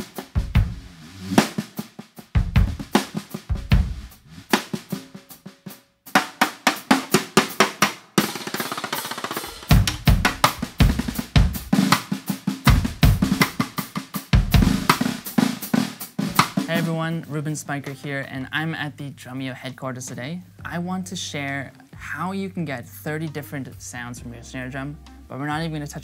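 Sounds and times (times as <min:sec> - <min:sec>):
low drum thuds: 0:00.0 - 0:01.6, 0:02.4 - 0:04.6, 0:09.7 - 0:11.8, 0:12.7 - 0:13.4
snare drum played with sticks: 0:00.0 - 0:05.5, 0:06.1 - 0:18.0.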